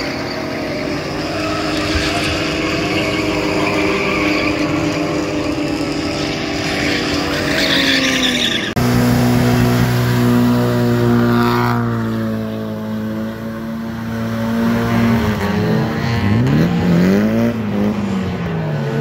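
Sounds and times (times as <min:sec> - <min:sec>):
car engines revving: 0:00.0 - 0:19.0
tires squealing: 0:00.0 - 0:19.0
engine at high steady revs: 0:08.7 - 0:19.0.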